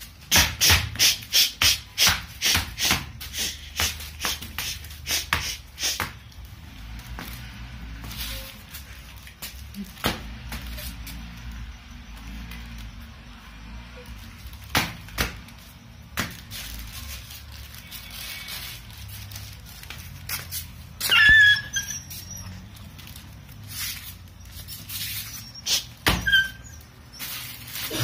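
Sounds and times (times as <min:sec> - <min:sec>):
short high squeak: 0:21.0 - 0:22.9, 0:23.8 - 0:28.0.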